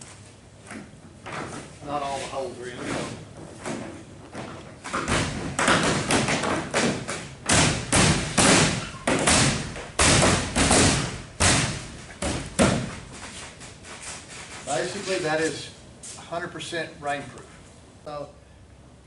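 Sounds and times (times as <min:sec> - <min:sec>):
rapid thuds on fiberglass: 0:03.4 - 0:13.8.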